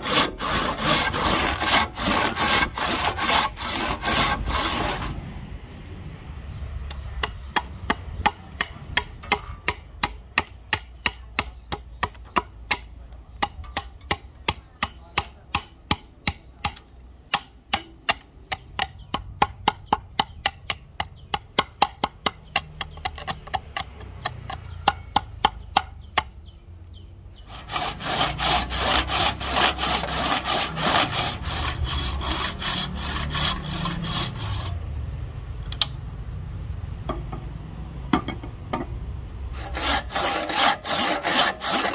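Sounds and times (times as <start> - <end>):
handsaw rasping through wood: 0.0 - 5.2, 27.5 - 34.8, 39.5 - 41.9.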